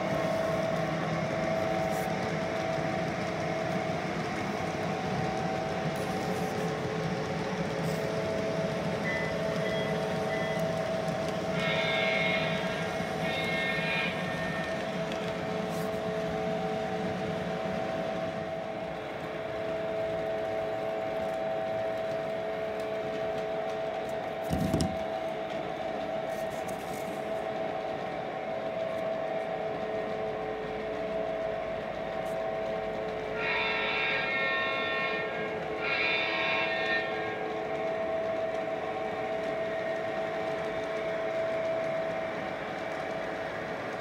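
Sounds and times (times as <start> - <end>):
model train motor hum: 4.4 - 16.4, 33.2 - 37.6
electronic train horn: 7.8 - 25.3, 28.8 - 42.4.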